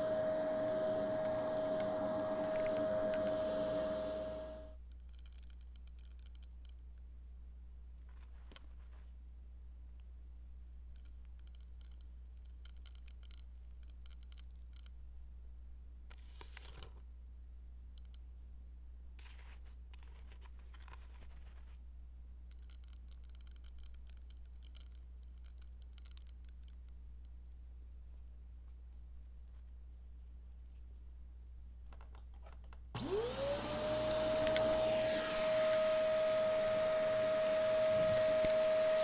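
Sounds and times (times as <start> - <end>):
soft rustling: 8.0 - 9.4, 19.2 - 22.0.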